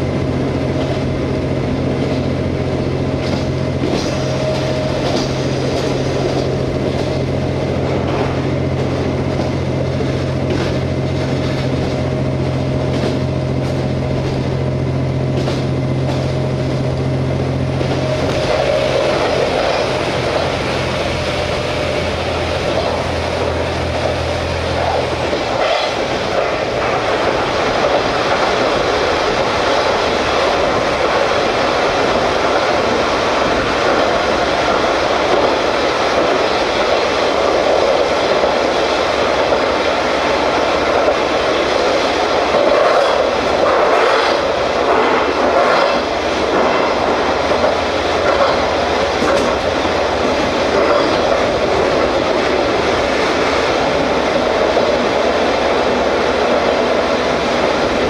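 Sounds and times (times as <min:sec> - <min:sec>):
diesel engine low drone: 0:00.0 - 0:58.0
train track and wheel noise: 0:00.0 - 0:58.0.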